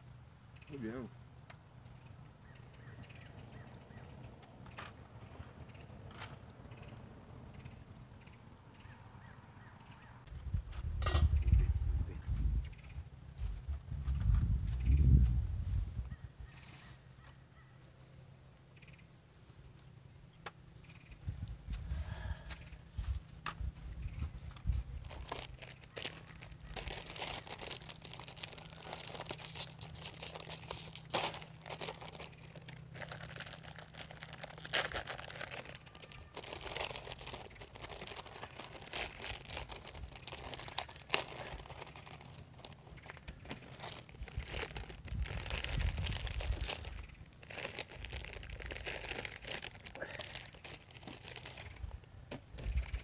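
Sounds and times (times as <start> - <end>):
plastic packaging crinkling: 25.0 - 53.0.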